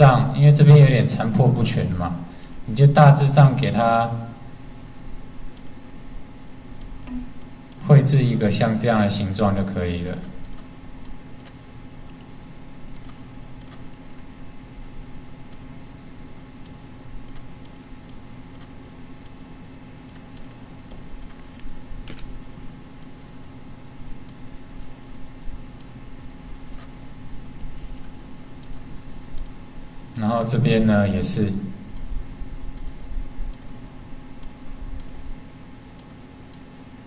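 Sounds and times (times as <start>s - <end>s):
steady low hum: 0.0s - 37.0s
computer mouse clicks: 5.5s - 5.8s, 6.8s - 7.9s, 10.1s - 12.3s, 12.9s - 14.3s, 16.6s - 19.4s, 20.0s - 23.6s, 24.2s - 25.0s, 26.7s - 27.0s, 27.6s - 29.6s, 31.9s - 33.8s, 34.4s - 35.2s, 35.9s - 36.8s.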